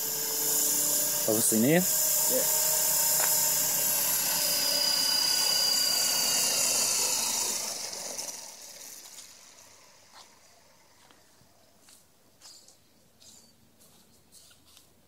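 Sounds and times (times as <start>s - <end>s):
rotor whine spinning down: 0.0s - 11.7s.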